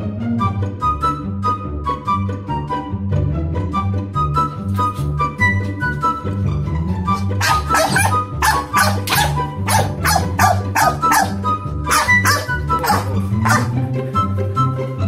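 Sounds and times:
background music: 0:00.0 - 0:15.0
small dog barking: 0:07.2 - 0:13.8.

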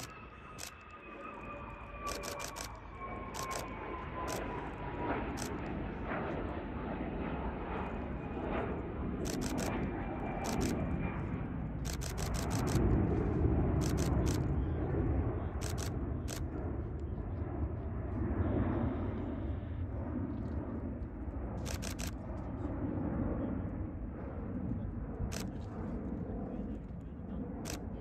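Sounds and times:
sharp clicks: 0:00.0 - 0:01.0, 0:02.1 - 0:02.8, 0:03.4 - 0:04.5, 0:05.4 - 0:05.7, 0:09.3 - 0:10.8, 0:11.8 - 0:12.9, 0:13.8 - 0:14.5, 0:15.6 - 0:16.5, 0:21.6 - 0:22.2
jet rumble overhead: 0:00.0 - 0:28.0.

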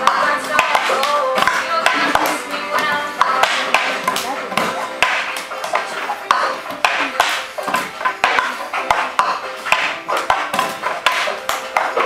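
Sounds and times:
plastic cups knocking on desks: 0:00.0 - 0:12.0.

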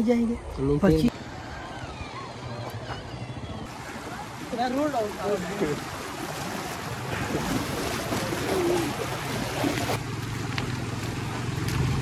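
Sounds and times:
river rushing over stones: 0:03.7 - 0:12.0
splashing from wading: 0:03.7 - 0:12.0.

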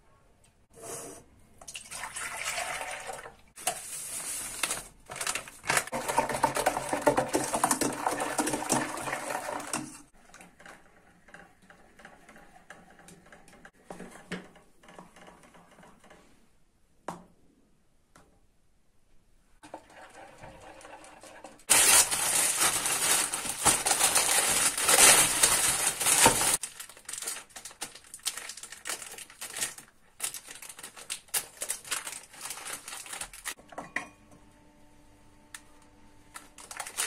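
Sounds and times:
milk pouring into jug: 0:01.6 - 0:03.4, 0:05.9 - 0:10.0, 0:19.6 - 0:21.6.

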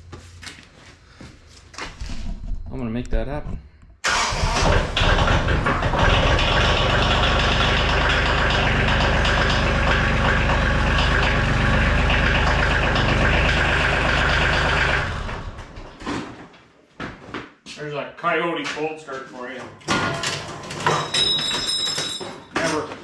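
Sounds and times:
diesel tractor engine starting: 0:04.0 - 0:15.9.

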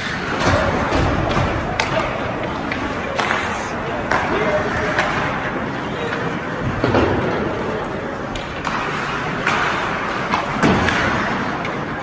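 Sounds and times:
skates on ice: 0:00.0 - 0:12.0.

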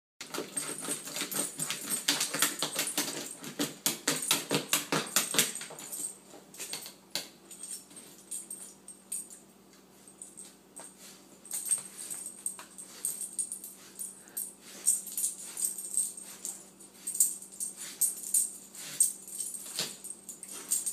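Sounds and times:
dog claws scratching on floor: 0:00.2 - 0:07.0.

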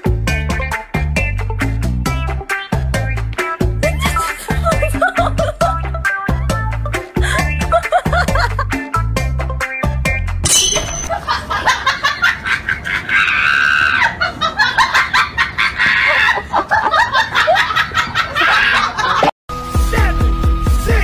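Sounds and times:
woman shrieking and laughing: 0:12.7 - 0:19.3.

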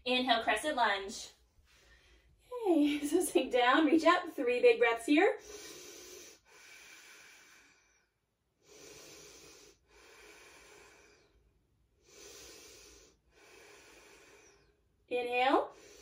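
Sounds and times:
woman breathing deeply: 0:01.6 - 0:02.4, 0:05.4 - 0:15.0, 0:15.7 - 0:16.0.

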